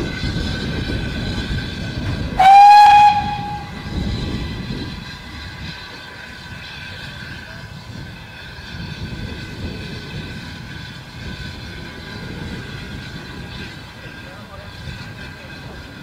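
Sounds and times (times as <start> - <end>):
low rumble: 0.0 - 5.5
steam locomotive whistle: 2.3 - 4.5.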